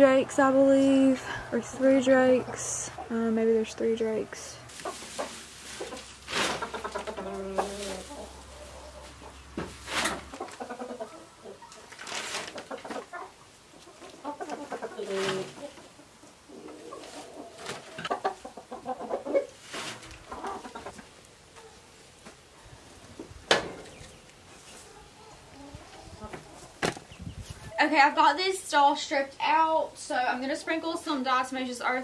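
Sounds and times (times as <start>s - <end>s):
hay rustling: 4.7s - 10.5s, 19.5s - 20.3s
poultry calling: 4.7s - 12.0s.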